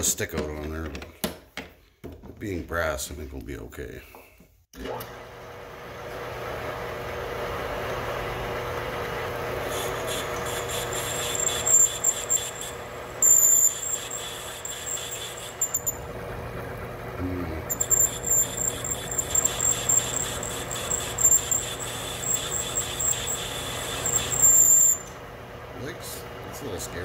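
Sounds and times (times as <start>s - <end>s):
metal lathe humming: 6.2s - 27.0s
cutter squealing: 9.6s - 16.1s, 17.2s - 25.2s.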